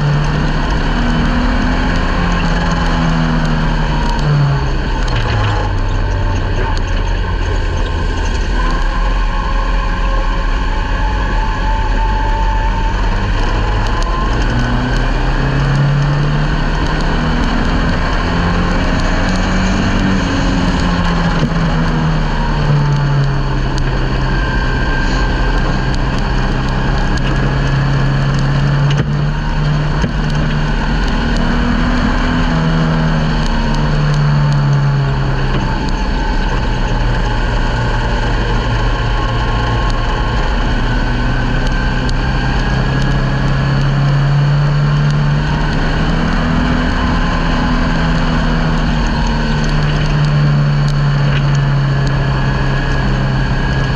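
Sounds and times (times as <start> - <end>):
dirt-track road noise: 0.0 - 53.9
race car engine revving: 0.0 - 53.9.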